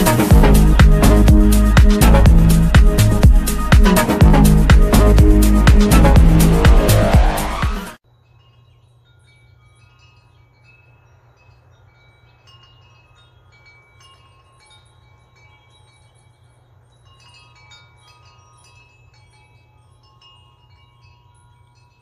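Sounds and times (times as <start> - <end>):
wind chimes ringing: 8.0 - 22.0.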